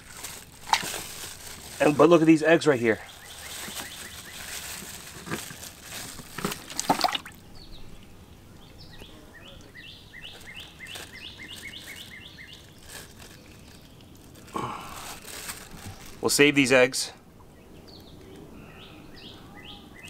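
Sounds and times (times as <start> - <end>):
plastic bag crinkling: 0.0 - 7.4, 10.2 - 16.4
bird chirping: 2.6 - 4.8, 7.4 - 14.2, 17.4 - 20.0.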